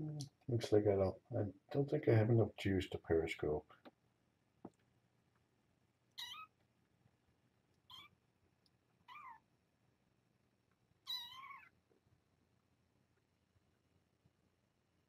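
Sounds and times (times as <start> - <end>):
kittens mewing: 6.2 - 6.6, 7.9 - 8.2, 9.1 - 9.4, 11.1 - 11.8.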